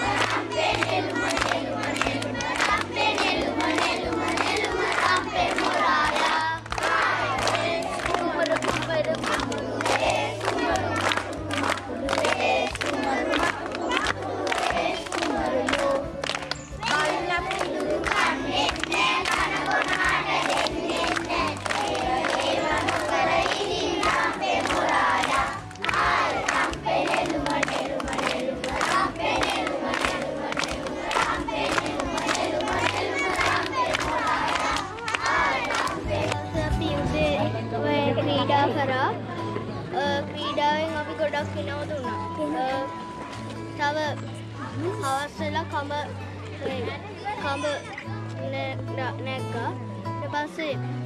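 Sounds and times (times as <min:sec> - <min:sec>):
hands clapping: 0:00.0 - 0:37.3
children singing in unison: 0:00.0 - 0:38.3.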